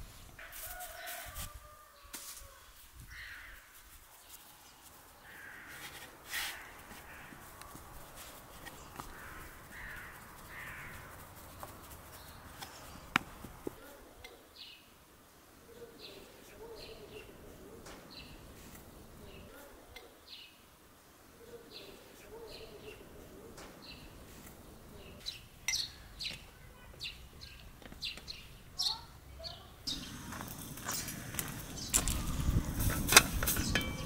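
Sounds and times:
birds cawing: 0:03.1 - 0:03.7, 0:05.2 - 0:07.8, 0:08.7 - 0:11.3, 0:29.9 - 0:32.6.

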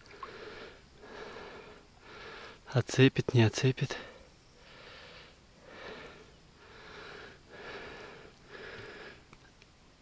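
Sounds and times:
man breathing heavily: 0:00.1 - 0:02.7, 0:03.9 - 0:09.3.

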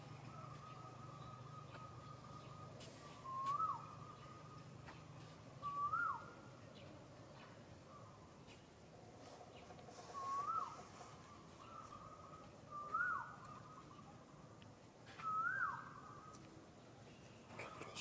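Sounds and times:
bird whistled call: 0:00.3 - 0:04.4, 0:05.6 - 0:06.4, 0:10.1 - 0:10.9, 0:11.6 - 0:13.8, 0:15.1 - 0:16.3.

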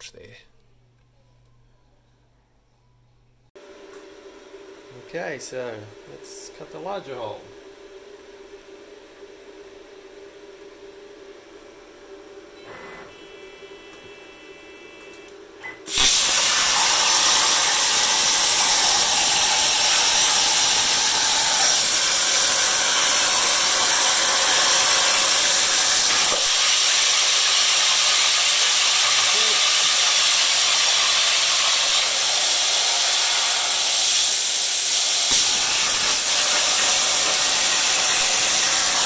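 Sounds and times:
plasma cutter hissing: 0:15.9 - 0:39.0.

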